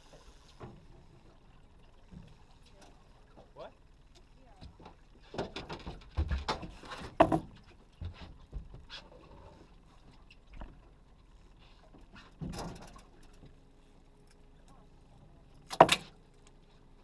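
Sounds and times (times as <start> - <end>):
fishing gear knocking on boat hull: 4.6 - 8.9.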